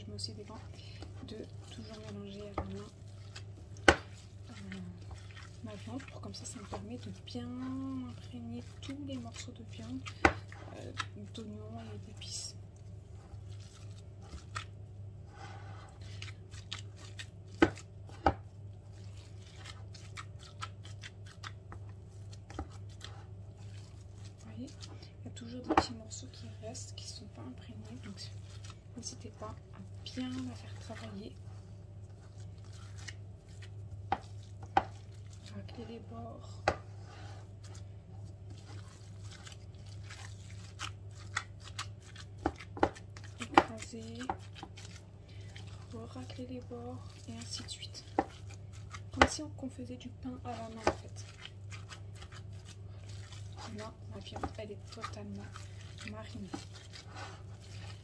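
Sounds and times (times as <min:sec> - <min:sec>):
hands kneading minced meat: 0:00.0 - 0:58.0
low steady hum: 0:00.0 - 0:58.0.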